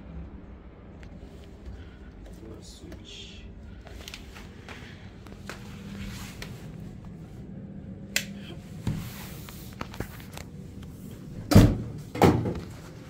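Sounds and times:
heavy door thumps: 11.5 - 12.6.

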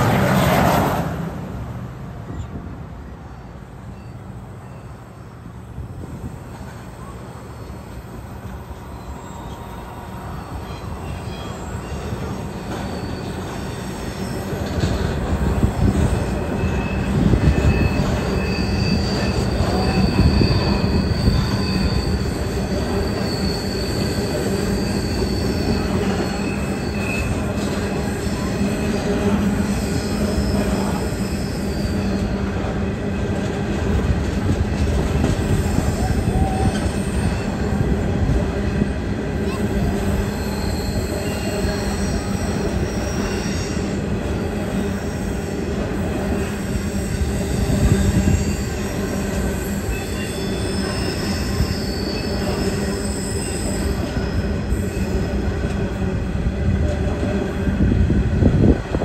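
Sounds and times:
train wheels rumbling on rail: 0.0 - 59.0
wheel flange squeal: 6.8 - 32.6, 35.3 - 37.9, 39.4 - 55.5.

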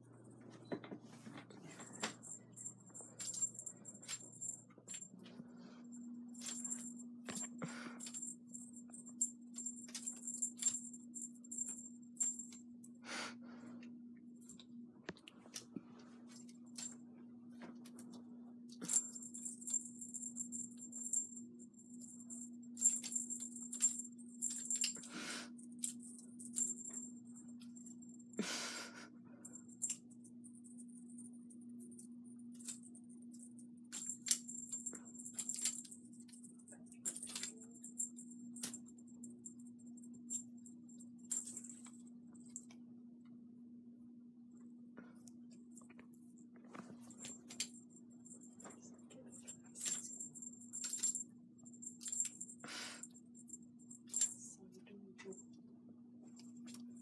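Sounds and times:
low steady hum: 0.0 - 57.0
small bell jingling: 1.6 - 13.0, 18.8 - 28.4, 29.4 - 42.7, 47.0 - 55.6.

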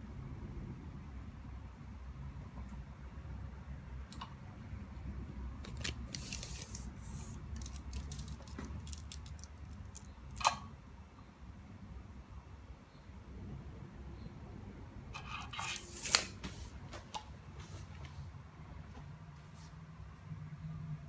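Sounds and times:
tape measure scraping hiss: 5.8 - 8.5, 15.2 - 16.8
tape measure clicks: 15.2 - 16.4.

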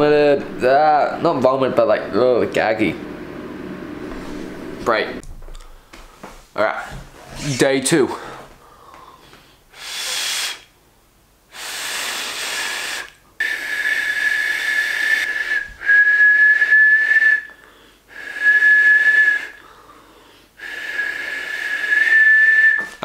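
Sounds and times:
finger whistle: 12.2 - 17.6, 18.2 - 19.6, 20.6 - 23.0.

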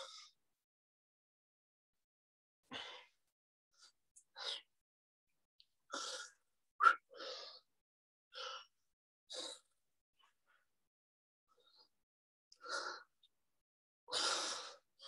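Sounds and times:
person breathing hard: 14.1 - 15.0.

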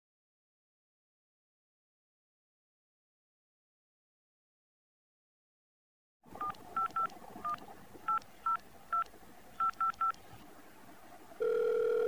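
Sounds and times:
keypad dialling beeps: 6.4 - 10.2, 11.4 - 12.0
phone calling tone: 11.4 - 12.0.

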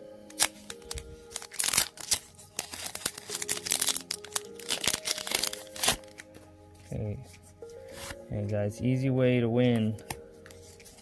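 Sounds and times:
foil wrapper crinkling: 0.3 - 6.3.

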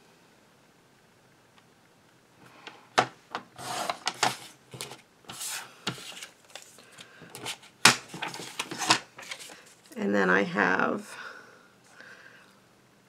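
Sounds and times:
crinkly paper rustles: 3.6 - 10.0.

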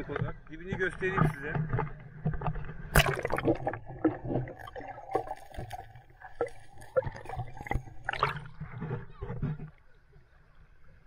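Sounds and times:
muffled underwater sloshing: 0.0 - 11.0
water splash: 2.9 - 9.6.

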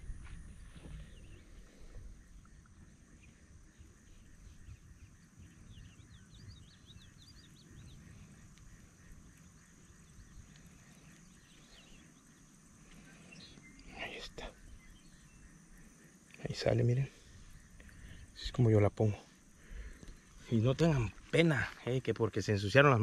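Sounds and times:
faint low rumble: 0.0 - 12.3
high chirping calls of small animals: 0.9 - 23.0.

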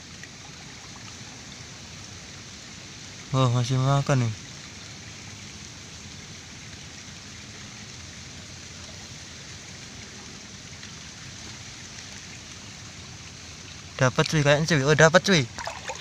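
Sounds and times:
steady hiss: 0.0 - 16.0.

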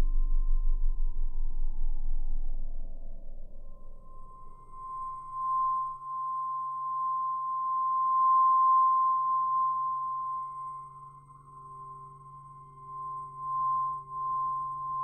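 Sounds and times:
low hum: 0.0 - 6.0
soft pulsing tone: 0.0 - 15.0.

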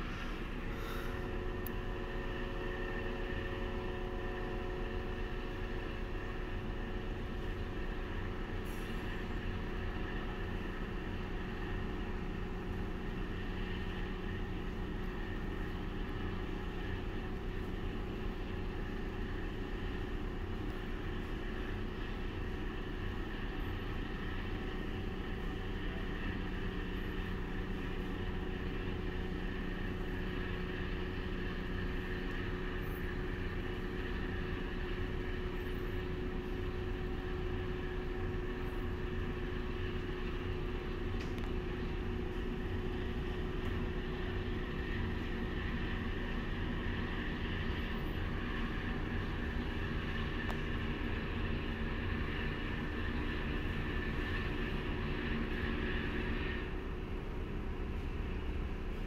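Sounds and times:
ship engines droning: 0.0 - 59.0.

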